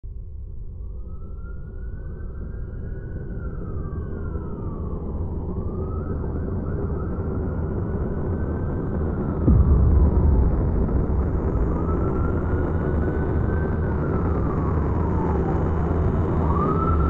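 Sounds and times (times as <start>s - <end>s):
siren wailing: 1.4s - 17.0s
low steady rumble: 9.4s - 17.0s.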